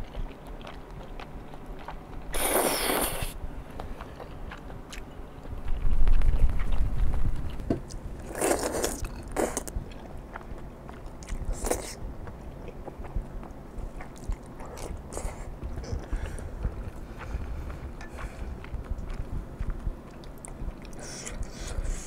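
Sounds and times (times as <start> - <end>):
chewing: 0.0 - 22.0
slurping noodles: 2.3 - 3.4, 8.2 - 9.7
low rumble: 5.3 - 8.4, 9.0 - 22.0.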